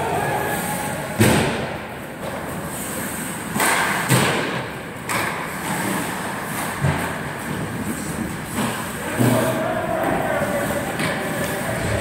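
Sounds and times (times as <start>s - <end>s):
hockey knocks and thuds: 1.2s - 2.4s, 3.5s - 6.0s
skates scraping on ice: 5.4s - 12.0s.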